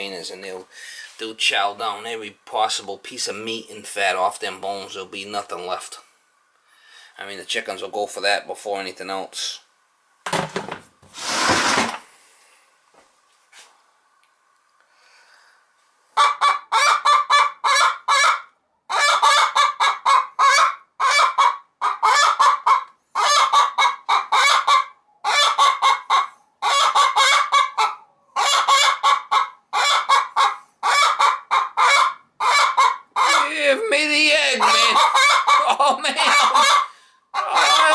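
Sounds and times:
hen cackling: 0:16.2 - 0:37.9.

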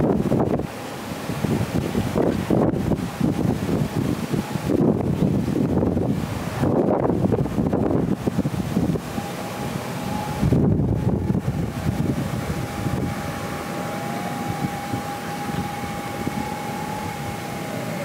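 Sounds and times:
distant jet engine whine: 0:00.0 - 0:18.0
wind buffeting microphone: 0:00.0 - 0:18.0
low rumble: 0:10.0 - 0:18.0.

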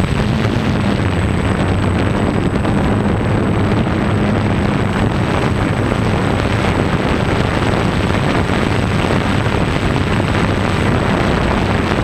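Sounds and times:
drone motors droning: 0:00.0 - 0:12.0
noisy rush: 0:00.0 - 0:12.0
thin high whine: 0:00.0 - 0:12.0.

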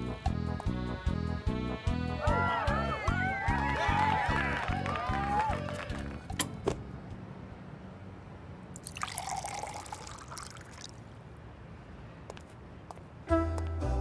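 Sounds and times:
milk pouring into a mug: 0:08.8 - 0:10.9.

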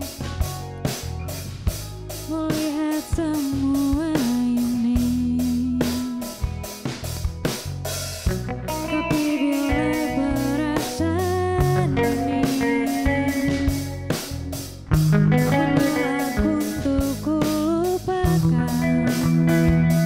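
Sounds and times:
bass guitar: 0:00.0 - 0:20.0
drum kit steady beat: 0:00.0 - 0:20.0
electric guitars: 0:00.0 - 0:20.0
woman singing: 0:02.2 - 0:06.7, 0:08.9 - 0:13.9, 0:15.5 - 0:20.0.

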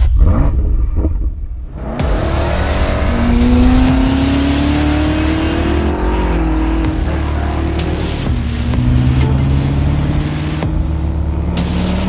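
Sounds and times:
car engine accelerating hard: 0:01.6 - 0:12.0.

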